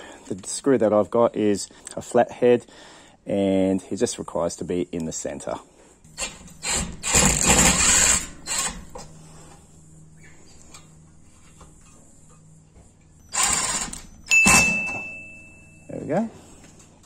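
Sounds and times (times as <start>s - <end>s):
impact driver bursts: 6.2s - 8.8s, 13.3s - 14.8s
high beep: 14.2s - 16.0s.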